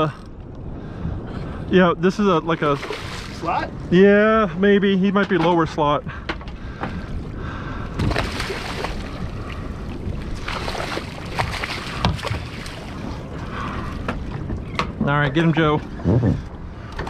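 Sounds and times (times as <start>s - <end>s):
wind noise on microphone: 0.0s - 17.0s
fish splashing at water surface: 8.0s - 9.5s, 10.4s - 13.0s.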